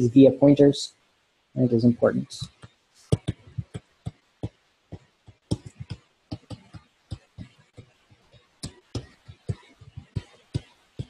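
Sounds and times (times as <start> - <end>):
stylus tapping on tablet screen: 2.4 - 11.0.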